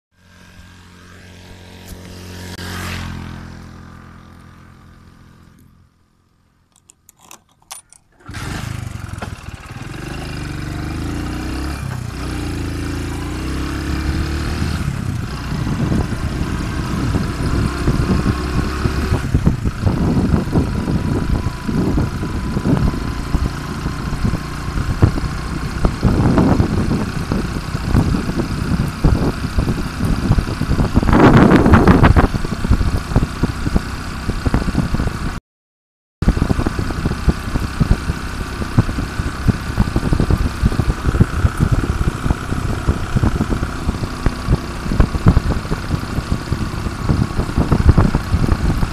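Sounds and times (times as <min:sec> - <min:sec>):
motorcycle engine running: 0:00.2 - 0:07.3, 0:08.1 - 0:35.4, 0:36.2 - 0:48.9
road noise: 0:00.2 - 0:35.4, 0:36.2 - 0:48.9
wind buffeting microphone: 0:09.8 - 0:35.4, 0:36.2 - 0:48.9.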